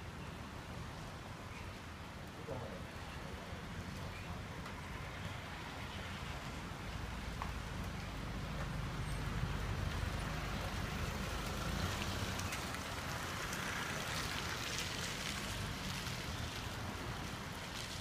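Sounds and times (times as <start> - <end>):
hiss of light rain: 0.0 - 18.0
faint rain drop ticks: 3.9 - 4.8, 7.2 - 8.9, 9.8 - 18.0.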